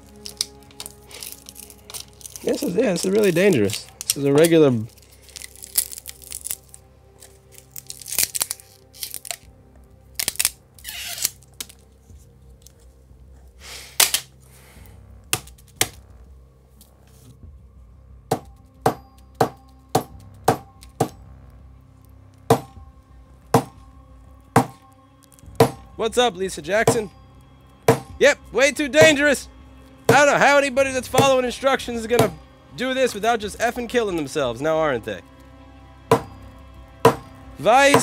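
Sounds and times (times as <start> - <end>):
battery being pried and torn out: 0.0 - 9.5, 10.1 - 11.9, 14.0 - 14.4, 15.2 - 16.0
faint music: 0.0 - 38.0
sharp knocks: 24.6 - 24.8, 27.9 - 28.2, 37.1 - 37.3.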